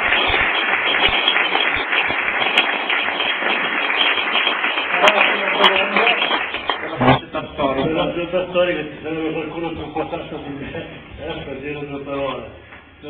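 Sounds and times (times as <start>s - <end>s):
audience applauding: 0.0s - 7.2s
voices rising: 6.7s - 7.9s.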